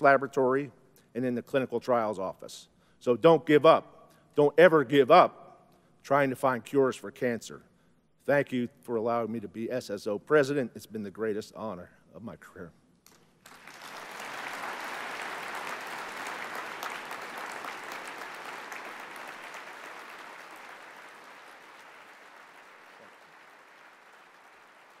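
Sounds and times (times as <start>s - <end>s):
large audience applauding: 13.1s - 25.0s.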